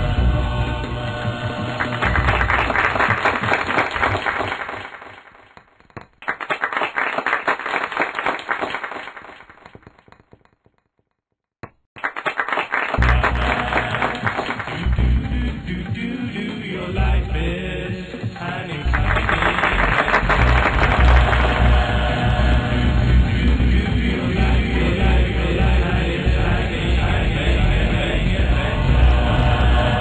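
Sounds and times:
cartoon soundtrack music: 0.0s - 3.8s, 13.0s - 30.0s
clapping: 1.8s - 10.6s, 11.6s - 15.0s, 18.9s - 21.9s.

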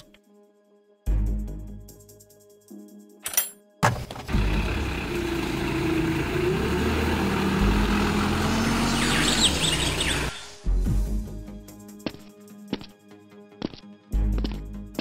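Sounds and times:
van engine driving off: 4.2s - 10.6s
high chirps: 8.8s - 10.6s.

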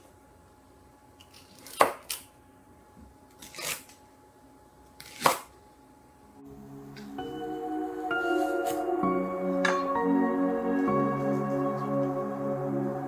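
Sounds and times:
soft music: 6.4s - 13.0s.

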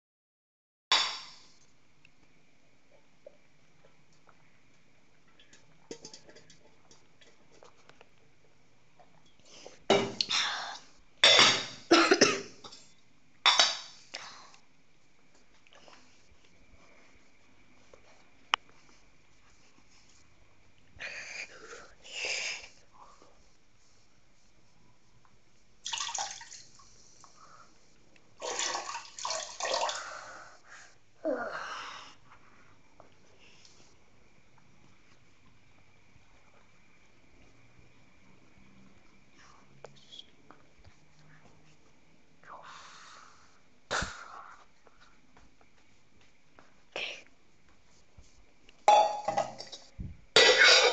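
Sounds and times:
person coughing hard: 11.2s - 12.6s, 50.4s - 50.9s.

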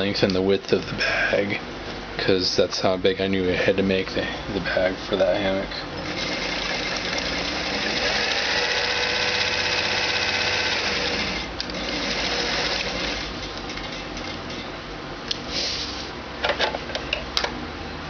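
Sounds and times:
sewing machine stitching: 6.0s - 14.0s.

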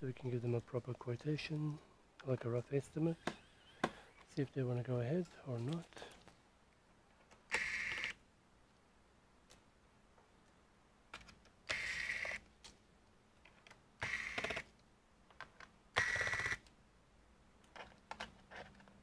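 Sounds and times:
electric screwdriver whining: 7.5s - 8.1s, 14.0s - 14.7s, 16.0s - 16.6s.

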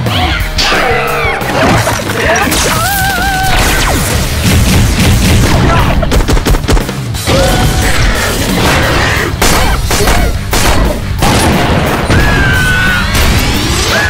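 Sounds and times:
loud action music: 0.0s - 14.0s
booms and crashes: 3.5s - 13.9s.

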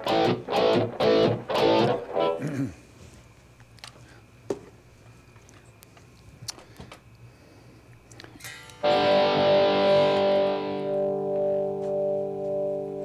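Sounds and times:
electric guitar chords: 0.0s - 2.7s, 8.5s - 13.0s
faint clicks: 7.9s - 8.8s
amplifier hum: 8.5s - 13.0s.

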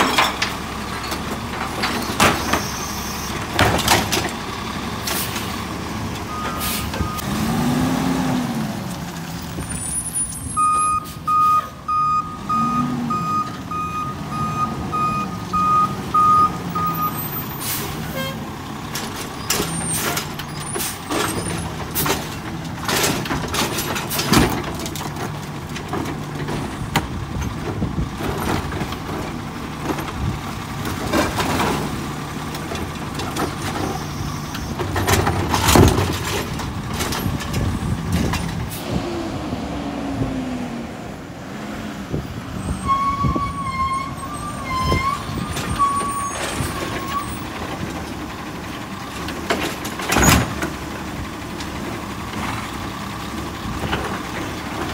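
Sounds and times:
clanks and bangs of cart and arm: 0.0s - 5.6s, 18.8s - 38.8s, 43.2s - 54.9s
garbage truck engine running: 0.0s - 10.6s, 12.3s - 54.9s.

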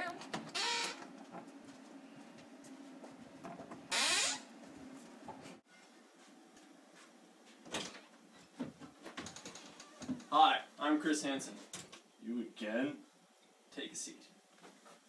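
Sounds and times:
door shutting: 0.2s - 1.1s, 3.5s - 4.5s, 7.7s - 8.1s.

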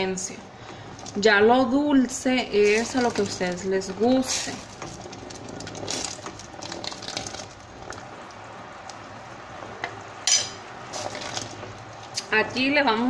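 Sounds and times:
thick syrup bubbling and popping: 0.6s - 1.4s, 2.4s - 12.6s
spoon stirring in pot: 9.8s - 12.7s.

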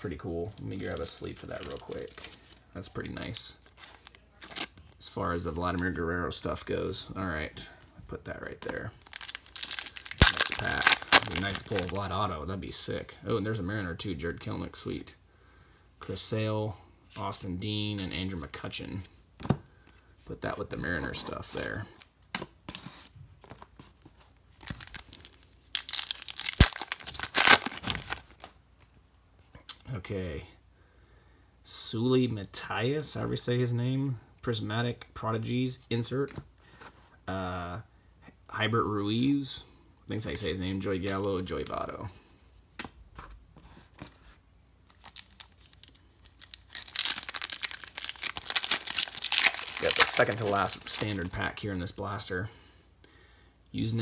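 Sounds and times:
cards being handled: 0.5s - 4.9s, 44.9s - 51.4s
foil wrapper tearing and crinkling: 9.0s - 12.1s, 24.6s - 28.3s, 44.9s - 51.4s.

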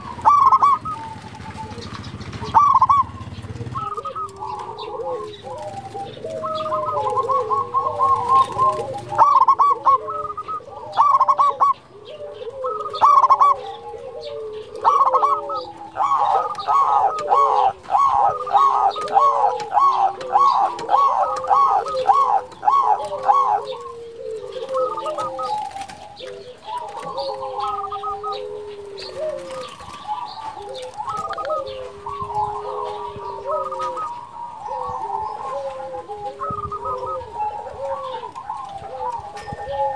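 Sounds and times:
doves cooing: 0.0s - 39.9s.

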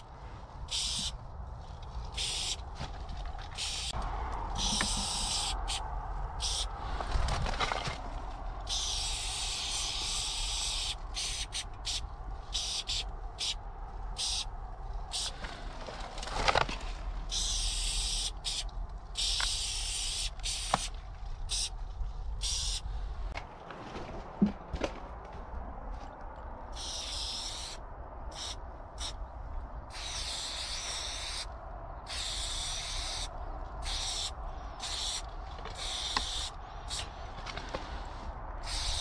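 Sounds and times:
aerosol spray can hissing: 0.7s - 1.1s, 2.2s - 2.6s, 3.6s - 4.0s, 4.6s - 5.8s, 6.4s - 6.7s, 8.7s - 12.0s, 12.6s - 13.6s, 17.3s - 20.9s, 22.4s - 22.8s, 26.8s - 27.8s, 28.4s - 29.2s, 29.9s - 31.5s, 32.1s - 35.2s, 35.8s - 37.0s, 38.6s - 39.0s.

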